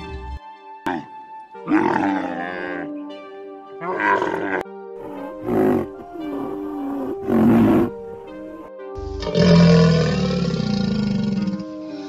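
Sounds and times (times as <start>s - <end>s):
background music: 0.0s - 12.0s
rhinoceros rough calls: 3.8s - 11.8s
crocodile deep growling roar: 9.0s - 11.7s.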